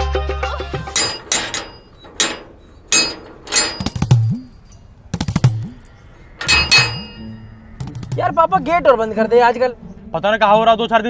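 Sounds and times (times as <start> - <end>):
background music: 0.0 - 1.6, 5.2 - 11.0
metal gate clanging knocks: 0.9 - 4.6, 5.2 - 8.2.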